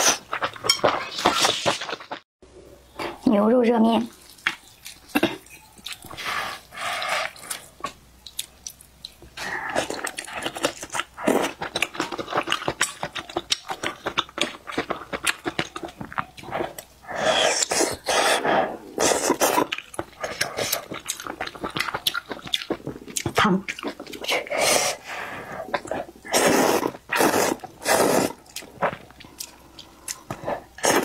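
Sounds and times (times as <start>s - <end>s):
chewing with small clicks: 4.2s - 6.2s, 7.2s - 16.9s, 19.6s - 24.4s, 28.4s - 30.5s.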